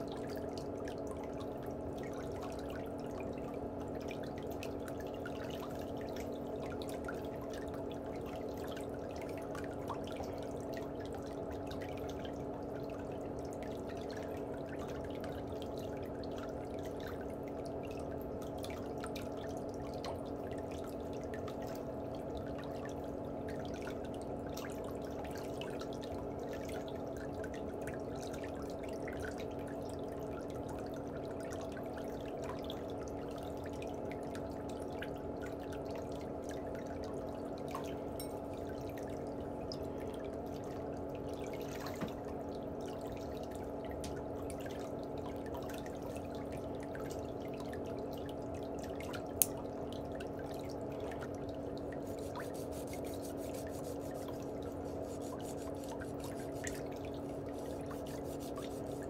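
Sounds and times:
running water trickling: 0.0 - 59.0.

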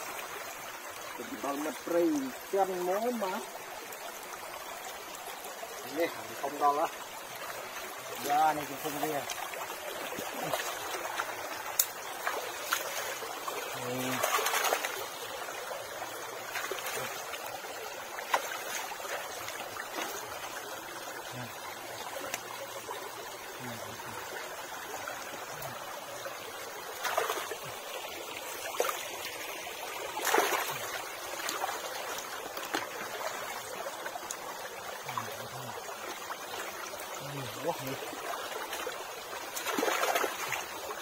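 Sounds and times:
stream water trickling: 0.0 - 41.0
splashes in water: 8.1 - 15.3, 16.3 - 17.5, 26.9 - 27.8, 30.1 - 33.5, 36.5 - 40.7.

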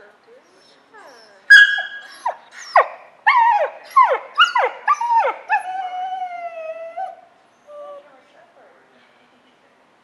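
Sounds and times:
dog whining and yelping: 0.6 - 8.1.

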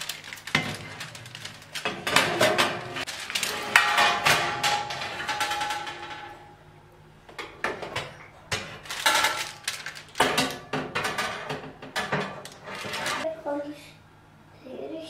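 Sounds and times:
oven tray and rack clanking: 0.5 - 6.5.

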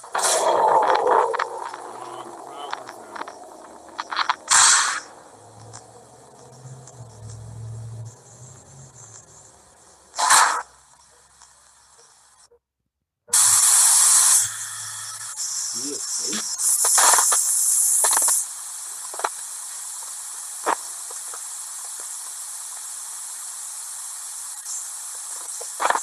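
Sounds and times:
loud hissing static: 0.0 - 12.4, 13.3 - 26.0
tape hiss: 0.0 - 12.5, 13.3 - 26.0.

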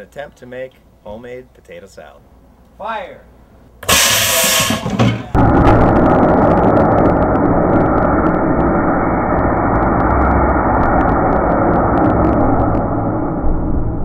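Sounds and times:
dull slowed-down roar: 5.4 - 14.0.

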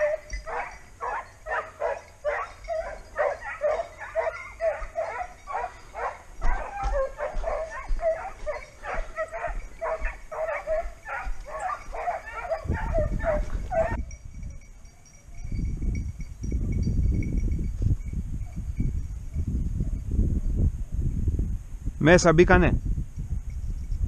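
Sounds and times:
hounds yelping: 0.0 - 14.1.

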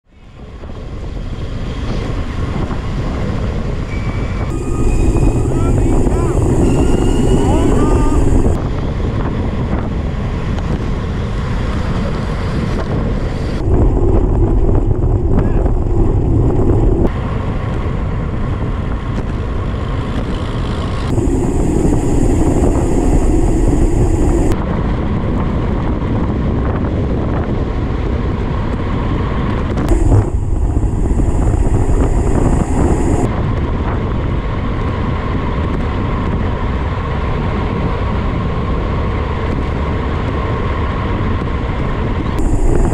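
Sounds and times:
wind buffeting microphone: 0.2 - 42.9.

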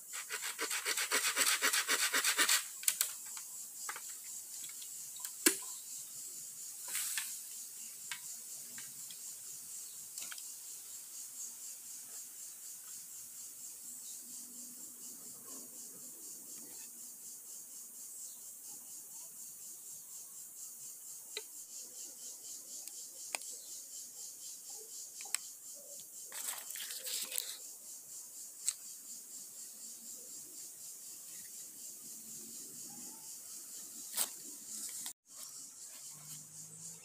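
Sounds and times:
insects chirring: 0.0 - 37.0
brief rustle: 26.3 - 27.6.

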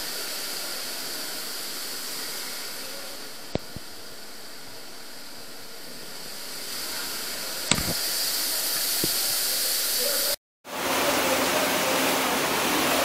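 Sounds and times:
sharp click: 7.7 - 8.0
water rushing through tunnel: 8.3 - 13.0.

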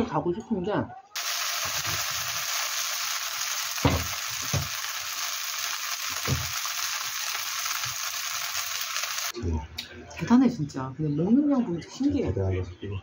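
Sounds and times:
rice sizzling in a wok: 1.2 - 9.4.

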